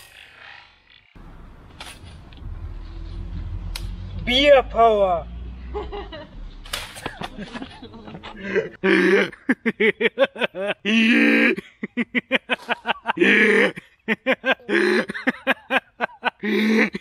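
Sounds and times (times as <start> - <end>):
man laughing hard: 5.7 - 6.3, 7.0 - 17.0.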